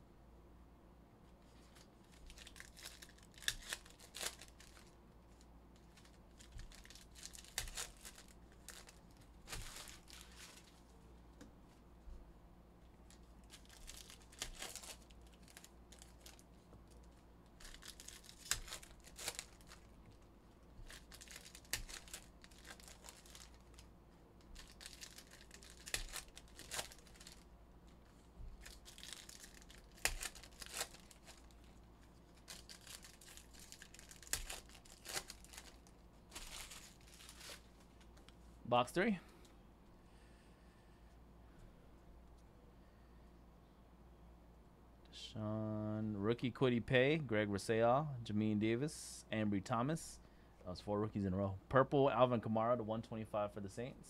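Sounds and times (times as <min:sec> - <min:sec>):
wrappers tearing and crinkling: 0:01.6 - 0:10.9, 0:13.0 - 0:20.2, 0:20.8 - 0:38.0.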